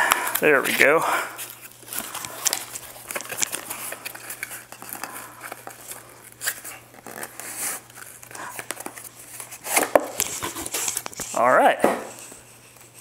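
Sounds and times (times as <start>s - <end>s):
packaging crinkling and rustling: 0.0s - 11.5s.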